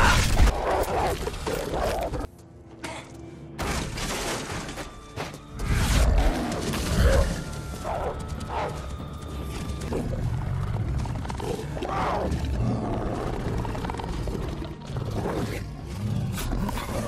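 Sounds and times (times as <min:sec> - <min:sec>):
film score music: 0:00.0 - 0:17.0.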